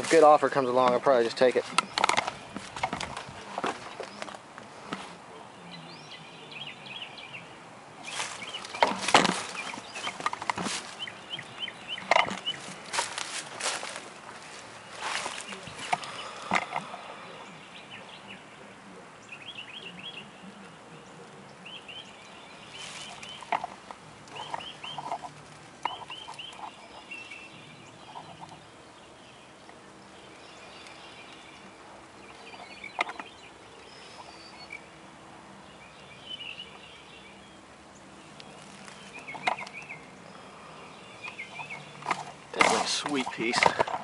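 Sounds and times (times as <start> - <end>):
birds chirping: 0.0 - 44.0.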